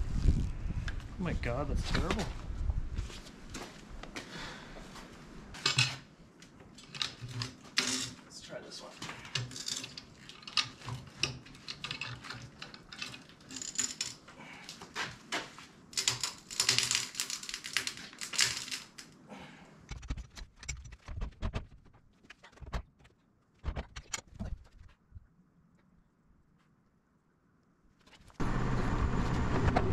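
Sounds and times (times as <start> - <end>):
metal clicking and clanking: 9.1 - 14.3.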